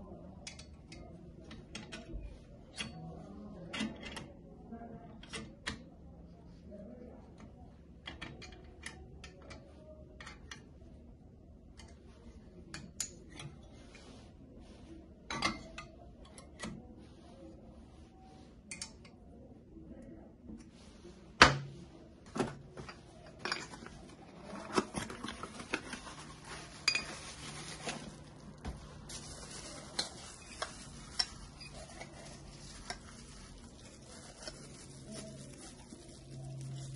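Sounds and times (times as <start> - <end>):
metal shaker cups clinking: 26.8 - 27.3.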